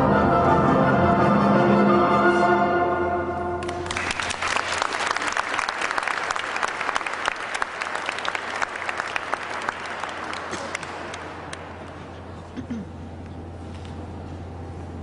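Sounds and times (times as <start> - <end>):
audience applause: 3.6 - 12.4.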